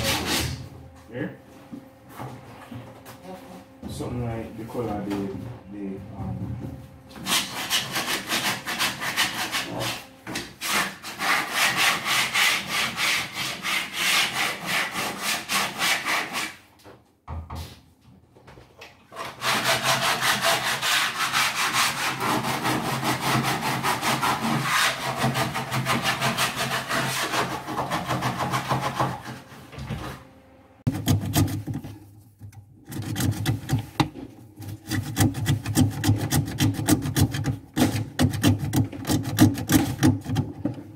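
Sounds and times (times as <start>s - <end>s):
sanding pad rasping on wood: 7.2s - 10.0s, 10.6s - 16.6s, 19.2s - 29.4s.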